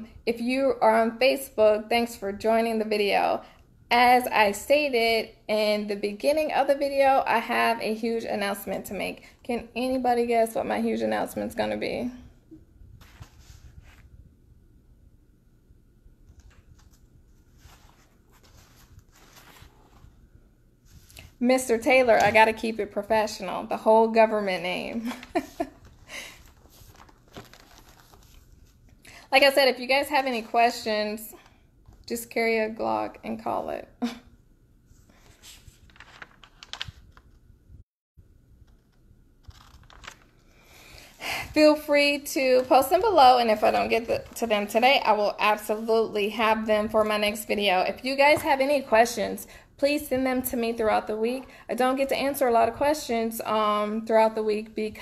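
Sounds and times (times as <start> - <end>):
faint soft rustles: 12.8 - 14.3, 16.3 - 21.4, 25.1 - 29.3, 34.8 - 37.4.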